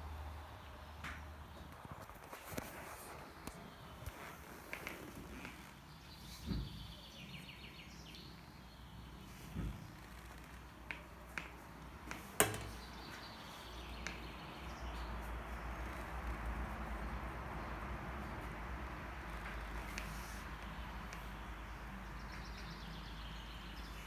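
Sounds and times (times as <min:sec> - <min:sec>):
claws and ball tapping on grate: 0:12.1 - 0:12.9
soft knocks: 0:12.4 - 0:12.9.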